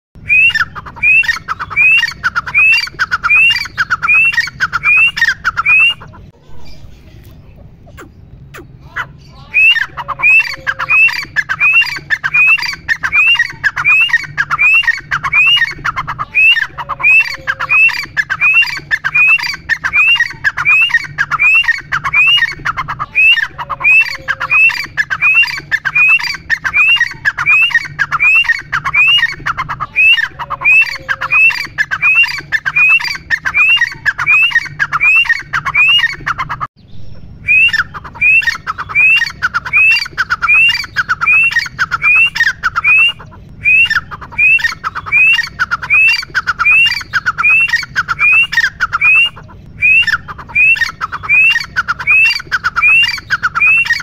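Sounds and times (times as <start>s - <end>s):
bird calling shrill rising notes: 0.2s - 7.0s, 7.9s - 54.0s.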